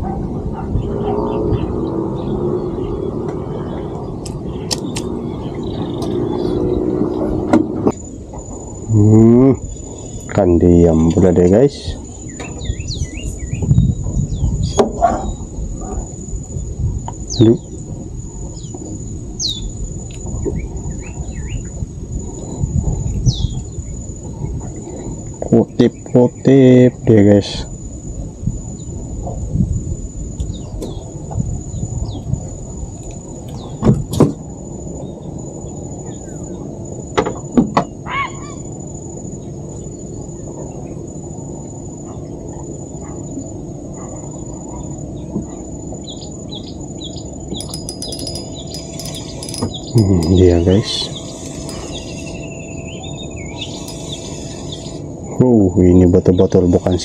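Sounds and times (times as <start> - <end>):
insects droning: 0.0 - 57.0
low rumbling background noise: 0.0 - 57.0
birds chirping: 0.6 - 27.5, 44.2 - 57.0.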